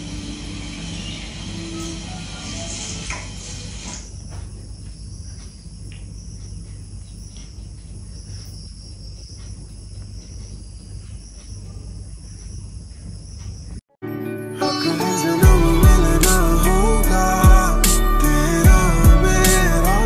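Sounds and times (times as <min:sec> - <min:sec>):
crickets chirring: 0:00.0 - 0:13.9.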